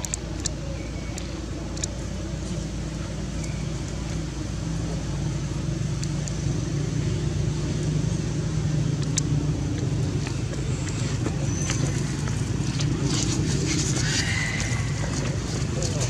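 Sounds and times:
faint sharp clicks: 0.0 - 2.6, 5.9 - 6.4, 8.9 - 13.3
engine humming: 0.0 - 16.0.

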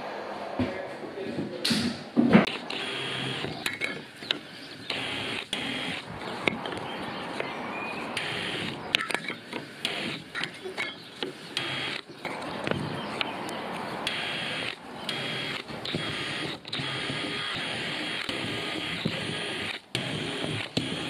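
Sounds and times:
cordless drill boring into wood: 2.5 - 3.9, 4.8 - 6.3, 8.2 - 8.8, 9.8 - 10.4, 11.5 - 12.1, 14.0 - 21.0.

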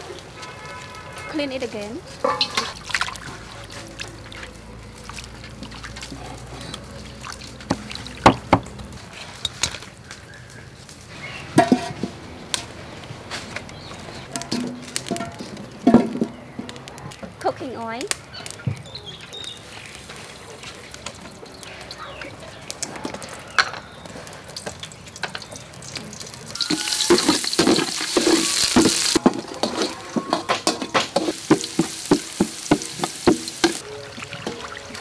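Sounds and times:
garlic sizzling in oil: 24.5 - 35.0
metal spoon scraping pot: 26.6 - 33.8.

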